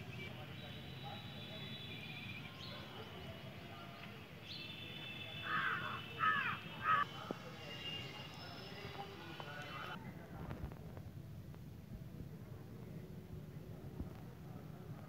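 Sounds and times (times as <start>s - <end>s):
bird calling: 5.5s - 7.0s.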